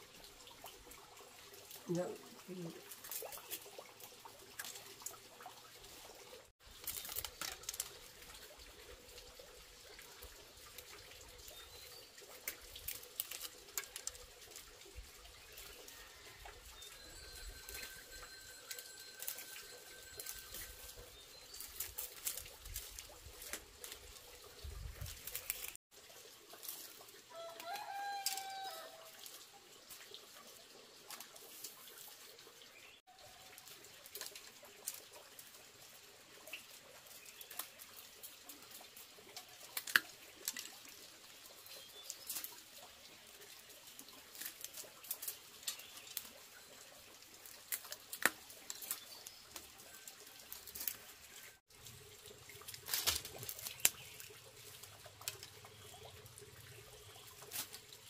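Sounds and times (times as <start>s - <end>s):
rooster crowing: 27.3s - 29.1s.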